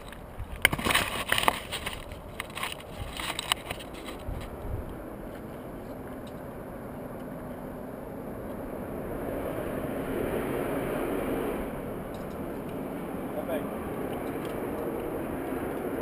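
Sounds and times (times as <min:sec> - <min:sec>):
distant engine rumble: 0:00.0 - 0:16.0.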